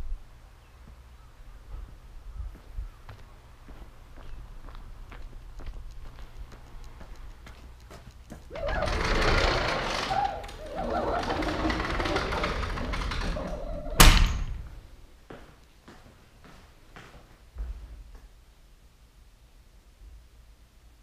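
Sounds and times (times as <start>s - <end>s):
sliding door rumbling on track: 8.5s - 14.6s
door banging shut: 8.6s - 14.8s.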